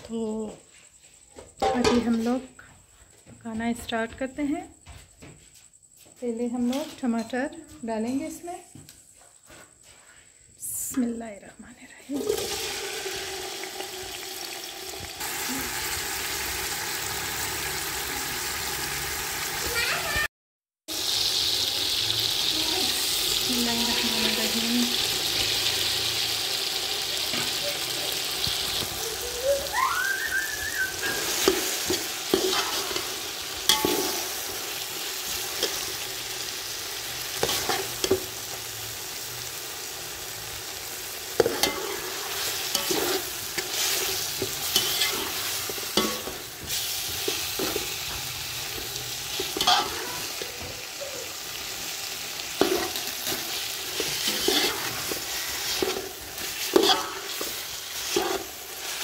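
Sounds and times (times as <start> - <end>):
tomatoes sizzling in oil: 12.1 - 20.3, 20.9 - 59.0
spoon stirring and scraping: 31.0 - 36.1, 37.4 - 38.4, 41.4 - 50.6, 52.6 - 59.0.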